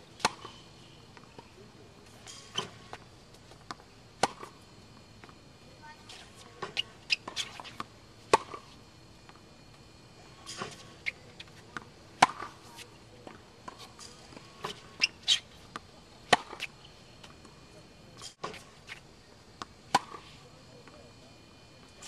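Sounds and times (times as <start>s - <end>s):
tennis racket hitting ball: 0.2s - 0.6s, 3.6s - 4.5s, 6.1s - 8.7s, 10.5s - 12.8s, 13.7s - 16.7s, 19.9s - 20.3s.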